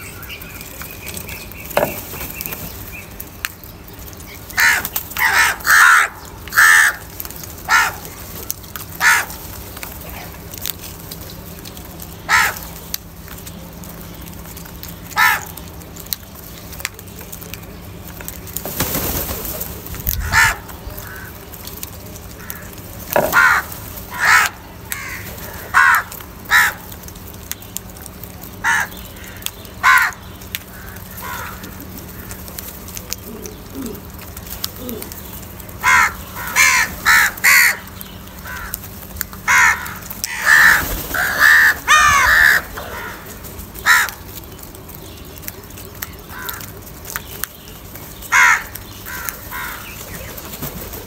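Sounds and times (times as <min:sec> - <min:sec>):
crows cawing: 0:04.5 - 0:08.2, 0:08.8 - 0:10.3, 0:12.3 - 0:12.8, 0:15.0 - 0:15.7, 0:20.1 - 0:21.5, 0:22.3 - 0:27.1, 0:28.6 - 0:32.6, 0:34.9 - 0:44.4, 0:46.1 - 0:47.1, 0:48.1 - 0:50.3.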